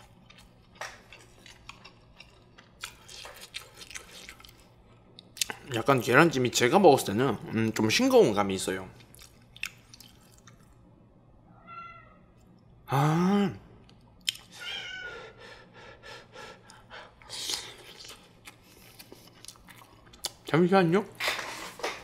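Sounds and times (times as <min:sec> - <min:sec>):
cat meowing: 0:11.5 - 0:12.3, 0:14.6 - 0:15.3.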